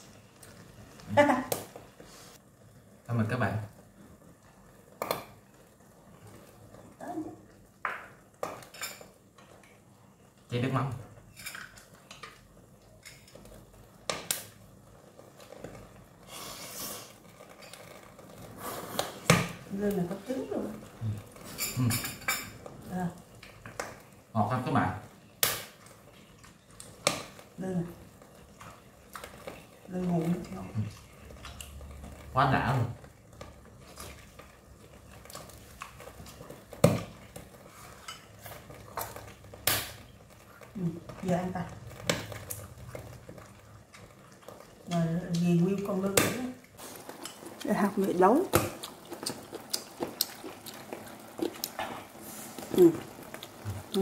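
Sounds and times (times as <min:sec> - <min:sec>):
eating noise: 0:41.8 - 0:46.0, 0:46.6 - 0:54.0.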